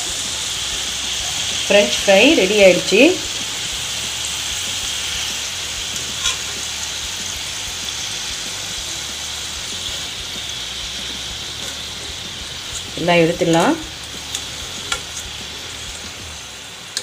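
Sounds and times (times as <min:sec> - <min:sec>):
fries sizzling in hot oil: 0:00.0 - 0:17.0
wire skimmer moving through fries: 0:00.0 - 0:17.0.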